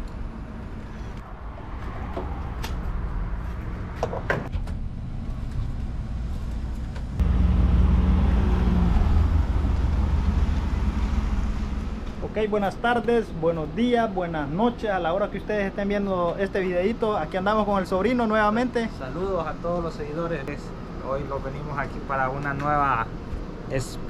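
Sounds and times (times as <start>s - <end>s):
pickup engine starting and rumbling: 7.0s - 12.2s.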